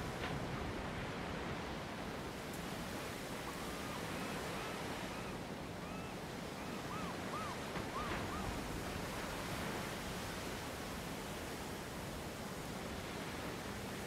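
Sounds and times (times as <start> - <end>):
wind: 0.0 - 14.0
whistled calls: 3.8 - 8.5.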